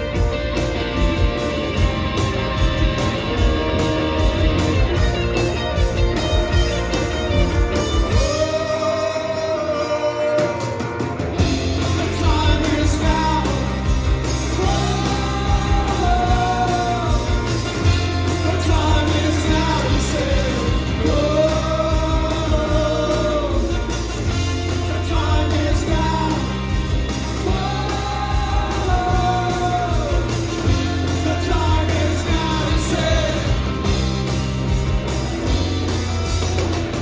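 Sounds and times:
rock band playing: 0:00.0 - 0:37.0.

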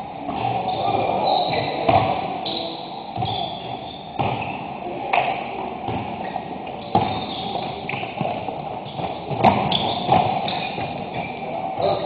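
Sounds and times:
sneakers squeaking on court: 0:00.3 - 0:12.0
basketball thuds: 0:06.9 - 0:11.3.

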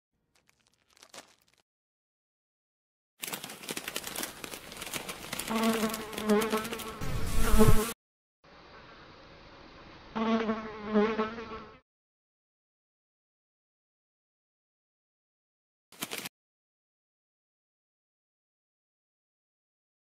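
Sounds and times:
bag rustling: 0:00.3 - 0:01.6, 0:03.2 - 0:07.0
insect buzzing: 0:05.0 - 0:08.0, 0:10.1 - 0:11.8.

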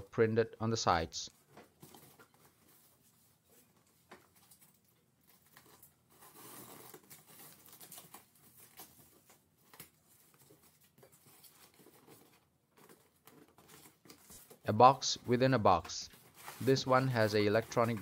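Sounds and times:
cardboard scraping and rustling: 0:05.3 - 0:14.6, 0:15.2 - 0:18.0.

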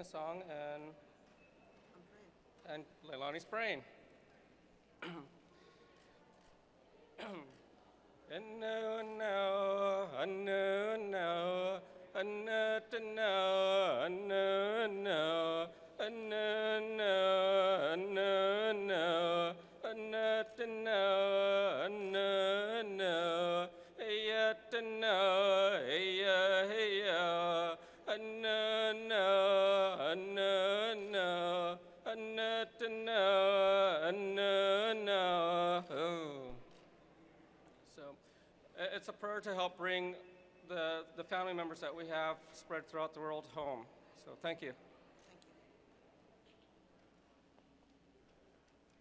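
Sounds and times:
man singing unaccompanied: 0:08.3 - 0:36.6.

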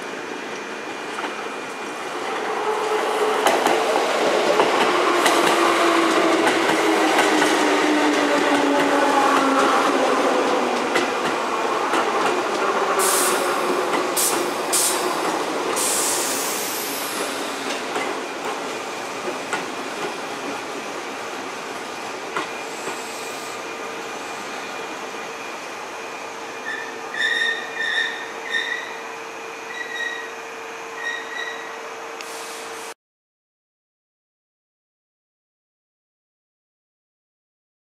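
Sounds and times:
electric train slowing with whine: 0:00.1 - 0:33.0
air hisses: 0:13.0 - 0:17.7, 0:22.7 - 0:23.7.

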